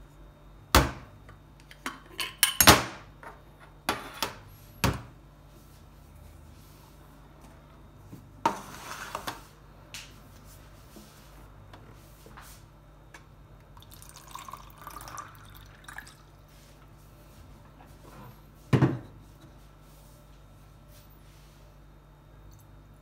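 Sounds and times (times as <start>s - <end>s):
water pouring into cup: 13.8s - 16.4s.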